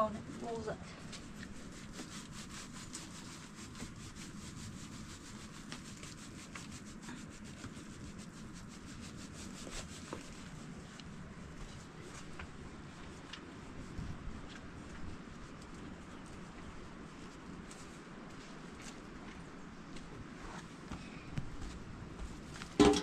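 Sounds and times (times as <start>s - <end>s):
scratchy rubbing strokes: 0.2s - 12.3s.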